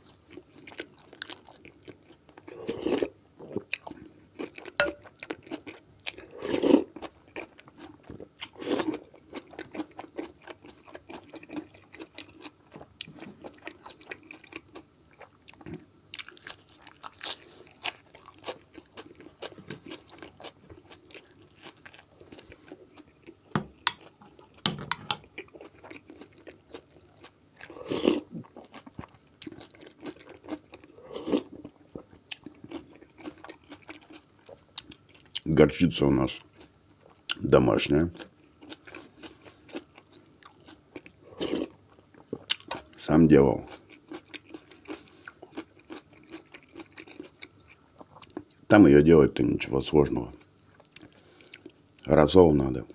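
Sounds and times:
chewing food: 0:00.0 - 0:35.5, 0:36.3 - 0:48.7, 0:50.3 - 0:52.1
spoon clicks: 0:04.8 - 0:05.0.

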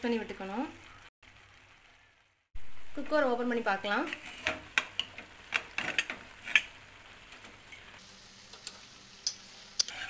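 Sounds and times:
metal lid clicks and scrapes: 0:04.1 - 0:06.7.

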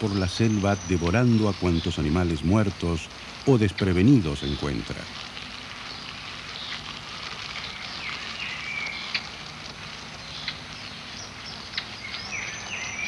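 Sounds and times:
bird calling: 0:00.0 - 0:13.0
pattering rustle: 0:00.0 - 0:13.0.

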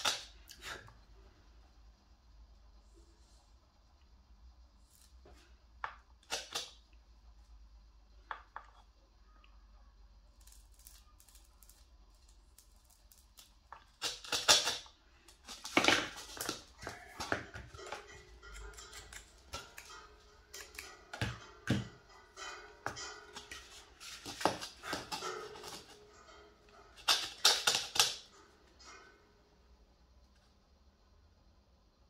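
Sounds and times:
clicks taps and scrapes handling tools: 0:15.4 - 0:29.1.

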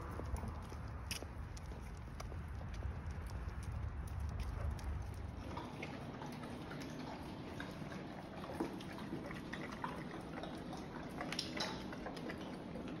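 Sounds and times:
dogs chewing and crunching kibble: 0:00.0 - 0:13.0
kibble clicking against bowls: 0:10.4 - 0:13.0.

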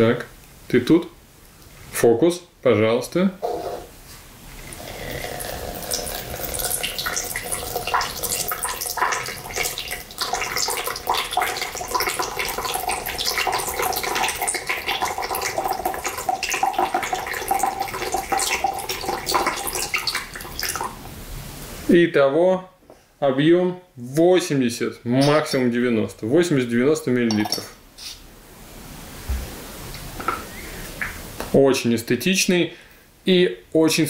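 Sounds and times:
water pouring into jug: 0:04.5 - 0:21.1.

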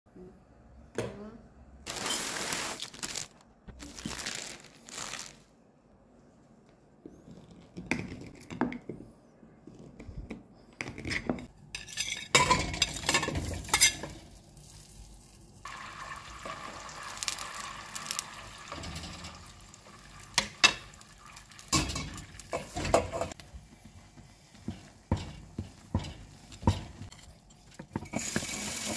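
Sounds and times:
butter sizzling: 0:14.9 - 0:23.0.

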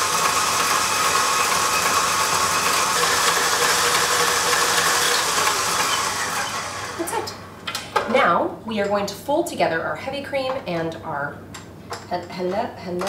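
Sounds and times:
electric stand mixer running: 0:00.0 - 0:07.3.

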